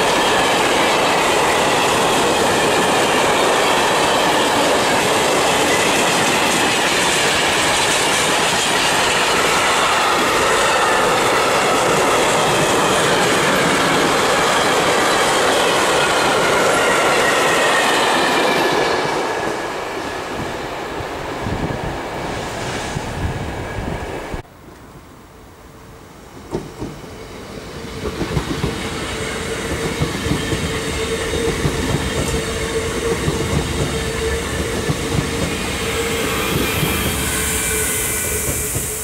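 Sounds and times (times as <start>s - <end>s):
wheels rolling on rail: 0.0s - 24.8s, 26.4s - 39.0s
high wavering wheel squeal: 28.8s - 39.0s.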